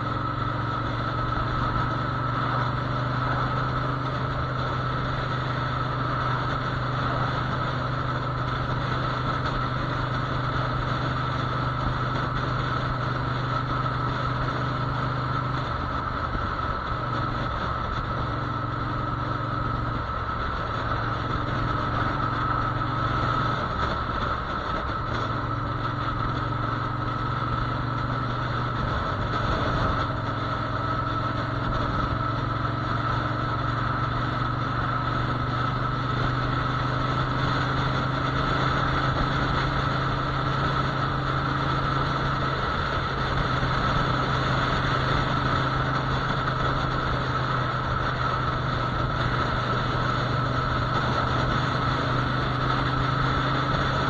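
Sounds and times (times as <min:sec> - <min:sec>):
motorcycle engine running: 0:00.0 - 0:54.0
wind and road noise: 0:00.0 - 0:54.0.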